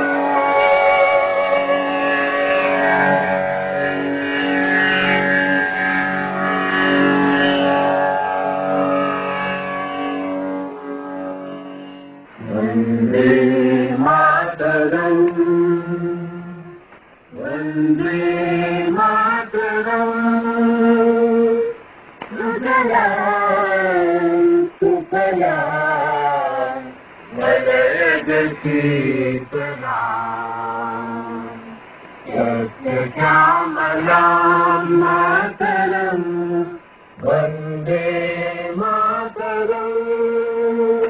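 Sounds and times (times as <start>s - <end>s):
person chanting long notes: 0.0s - 21.8s.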